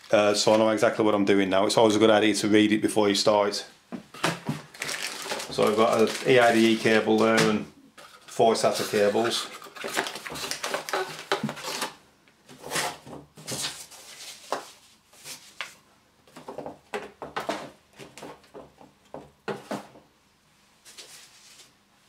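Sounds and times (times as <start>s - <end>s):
paper and cardboard rustling: 4.2s - 16.7s, 20.8s - 21.8s
plastic bag crinkling: 4.6s - 7.6s, 8.2s - 12.0s.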